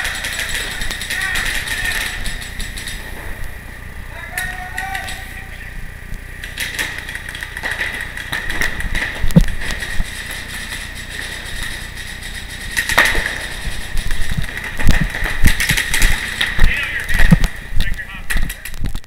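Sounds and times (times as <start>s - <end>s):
steady low rumble: 0.0s - 19.0s
paintball marker shots: 6.4s - 18.7s.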